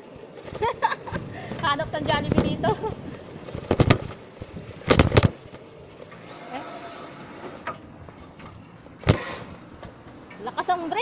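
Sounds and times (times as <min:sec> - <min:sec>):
wind and road hiss: 0:00.0 - 0:06.3
bicycle knocks clattering: 0:03.4 - 0:04.2.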